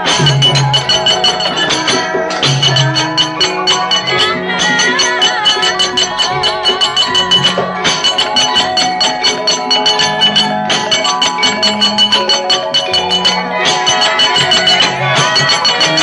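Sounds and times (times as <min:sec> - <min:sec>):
gamelan playing fast: 0:00.0 - 0:16.0
metallophones ringing: 0:00.0 - 0:16.0
sharp rhythmic knocks: 0:00.0 - 0:16.0.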